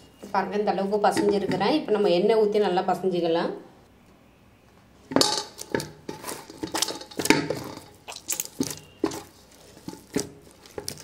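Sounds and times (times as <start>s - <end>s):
dough kneaded by hand: 5.1s - 11.0s.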